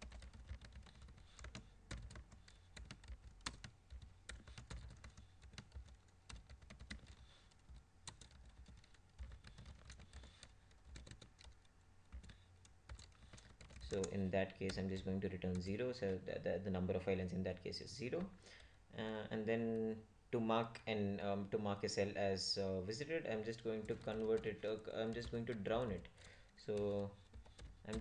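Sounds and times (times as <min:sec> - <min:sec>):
keyboard typing: 0:00.0 - 0:14.8, 0:23.4 - 0:28.0.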